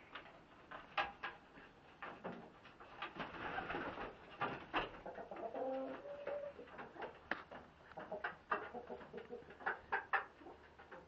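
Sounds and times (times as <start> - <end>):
hen clucking: 5.0 - 7.2, 7.9 - 11.0
hens making soft calls: 5.0 - 7.2.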